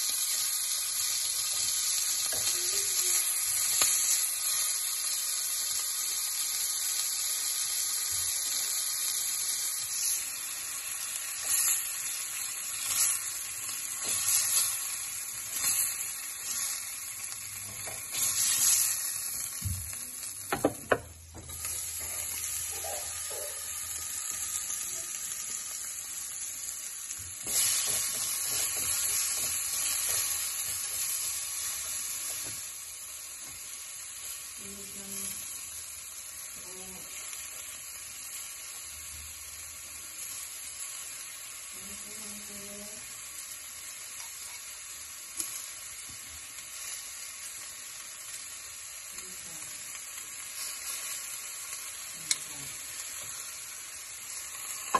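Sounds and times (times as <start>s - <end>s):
pork sizzling in a pan: 0.0s - 54.9s.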